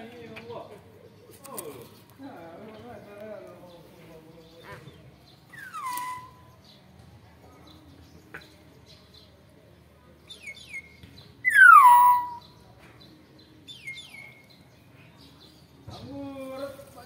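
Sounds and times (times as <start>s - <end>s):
bird whistling: 5.5s - 6.5s, 11.4s - 12.5s
high bird chirps: 5.5s - 6.6s, 11.4s - 12.6s.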